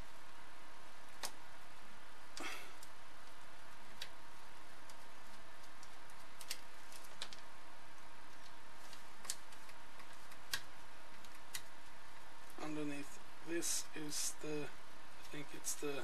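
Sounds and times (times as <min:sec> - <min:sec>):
steady hiss: 0:12.1 - 0:16.0.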